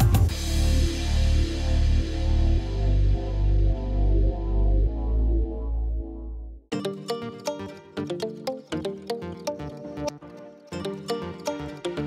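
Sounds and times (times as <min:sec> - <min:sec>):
deep bass line: 0:00.0 - 0:06.7
faint melodic lines: 0:06.7 - 0:12.0.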